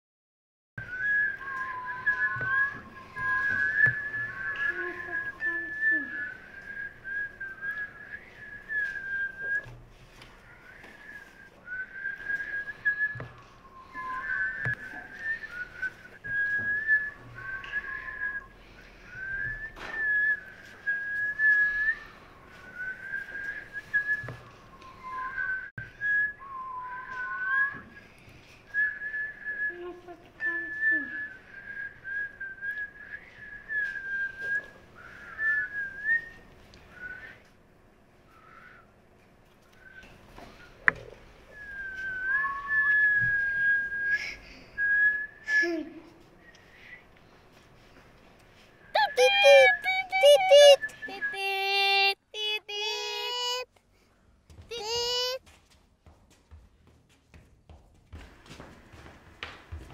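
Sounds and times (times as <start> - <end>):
girl whistling a tune: 0.8 - 9.7, 10.6 - 28.0, 28.8 - 37.4, 41.5 - 47.0, 49.0 - 53.7, 54.7 - 55.4.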